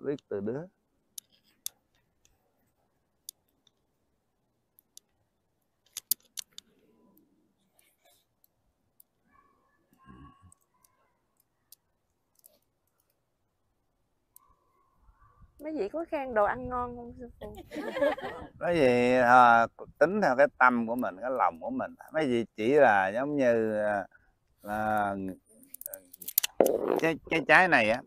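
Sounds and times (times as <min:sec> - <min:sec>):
small clicks and knocks: 0:01.1 - 0:02.4, 0:04.8 - 0:06.9, 0:25.6 - 0:26.8.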